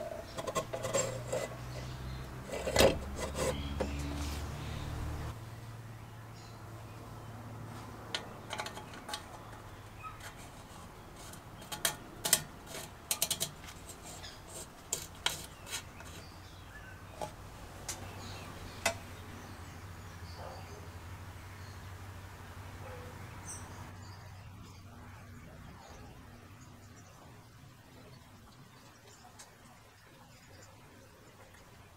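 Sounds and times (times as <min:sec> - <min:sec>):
metal cap screwing on with clicks: 0:00.0 - 0:04.2, 0:08.1 - 0:16.3, 0:17.1 - 0:18.1, 0:18.8 - 0:19.1.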